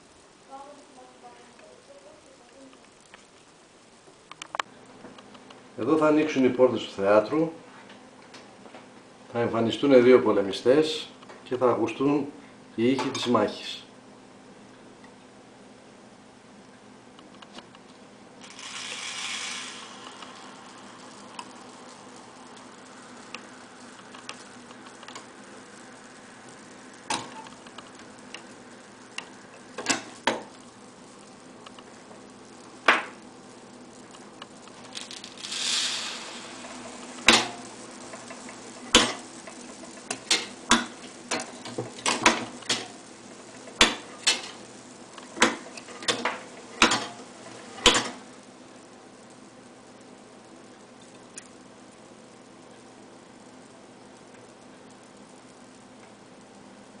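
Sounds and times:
rustling hiss: 17.5s - 57.0s.

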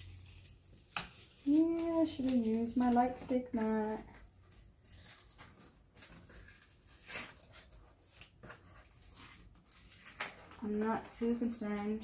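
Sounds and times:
paper backing rustling and crinkling: 0.0s - 12.0s.

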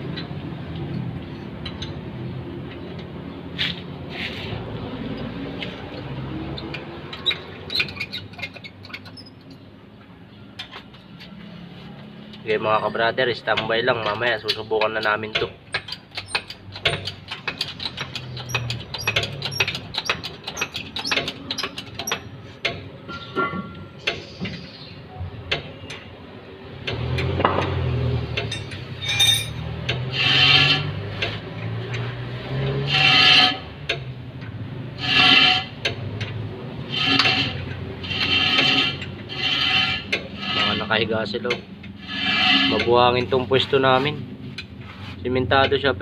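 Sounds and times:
ratchet wrench clicking: 15.7s - 22.8s
ringing metallic strokes: 28.5s - 29.6s.

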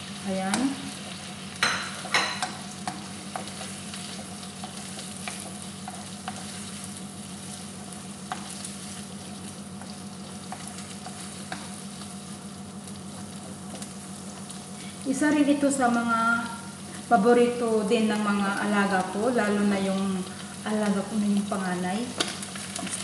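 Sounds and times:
mushrooms sizzling in a pan: 0.0s - 23.0s.

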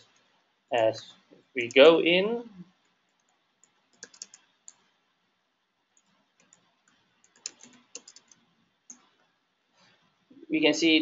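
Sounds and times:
faint computer keyboard typing: 0.0s - 0.4s, 2.8s - 5.0s, 5.9s - 9.3s.

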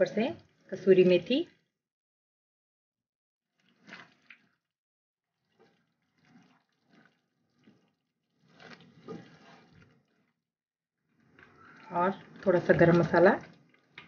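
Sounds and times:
wooden spatula stirring thick gravy: 3.5s - 14.0s.

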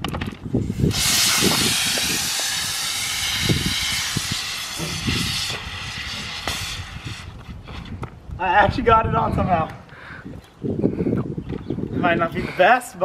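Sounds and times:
soda hissing and spraying: 0.6s - 7.5s.

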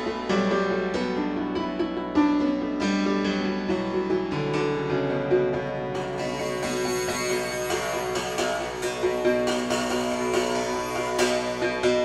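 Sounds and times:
slow melody of ringing notes: 5.9s - 12.0s.

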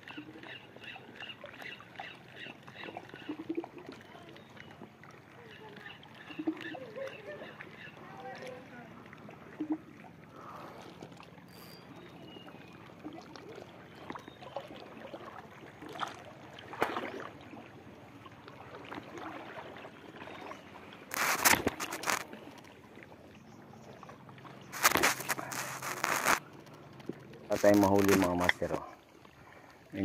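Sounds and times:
seawater lapping around rocks: 0.0s - 30.0s
cloth rubbing on microphone: 21.1s - 22.2s, 24.7s - 26.4s.

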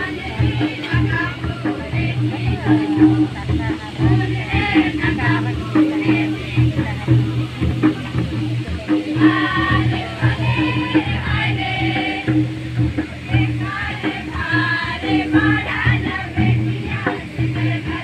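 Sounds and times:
group singing folk song: 0.0s - 18.0s
steady drum beats: 0.0s - 18.0s.

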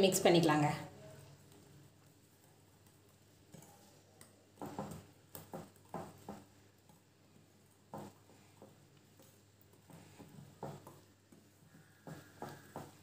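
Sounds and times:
whisk stirring in bowl: 1.0s - 13.0s
whisk tapping against bowl: 7.9s - 13.0s.

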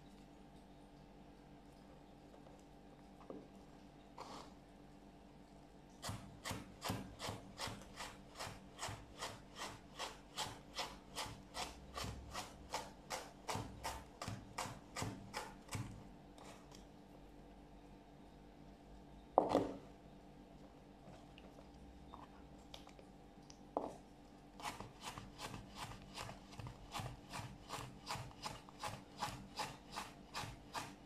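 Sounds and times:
knife cutting carrot on board: 6.0s - 16.8s, 24.6s - 31.0s.

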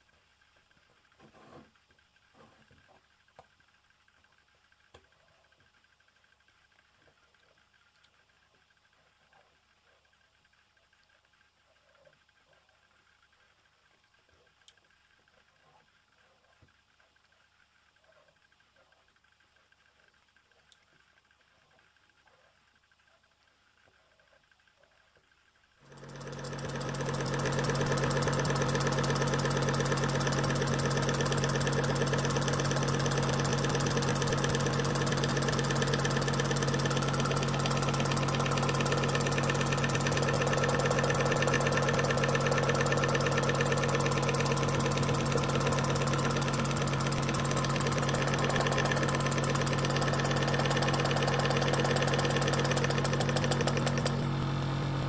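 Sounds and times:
model steam engine running fast: 25.8s - 55.0s.

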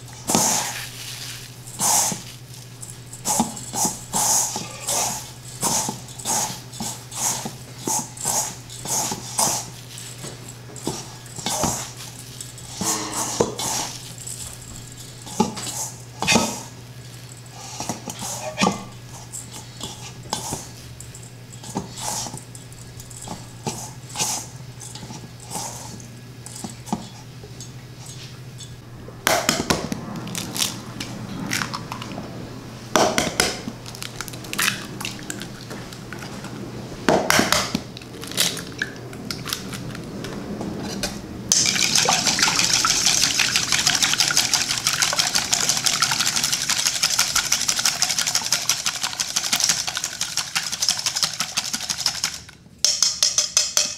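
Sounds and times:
steady low hum: 0.0s - 52.9s
crumbs rustling in a steel bowl: 0.4s - 2.7s.

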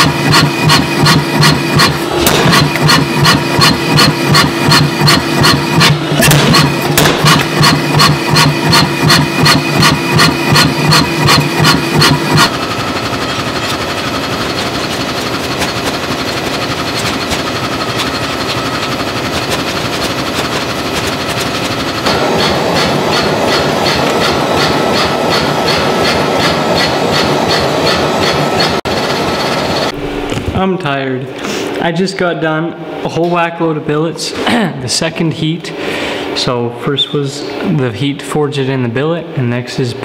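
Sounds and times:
power hammer striking hot steel: 0.0s - 30.4s
machine humming: 0.0s - 37.8s.

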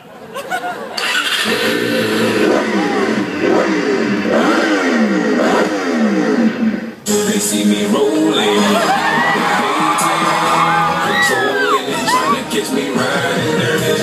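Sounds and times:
electronic dance music: 6.9s - 14.0s.

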